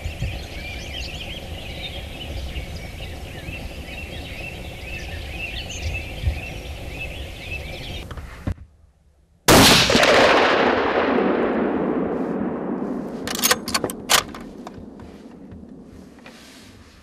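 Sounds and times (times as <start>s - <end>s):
rifle shot with echo: 9.5s - 15.0s
sharp clicks: 13.3s - 14.9s.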